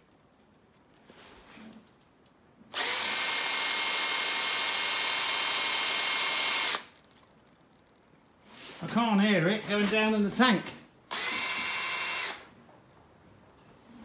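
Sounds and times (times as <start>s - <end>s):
power drill running pump: 2.7s - 6.9s, 11.1s - 12.5s.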